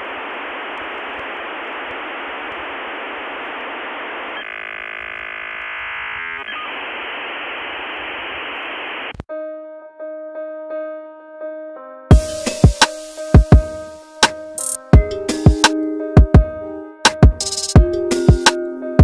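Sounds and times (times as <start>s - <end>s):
radio static hiss: 0.0s - 9.3s
buzzing tone: 2.1s - 9.1s
soft piano music: 9.3s - 19.0s.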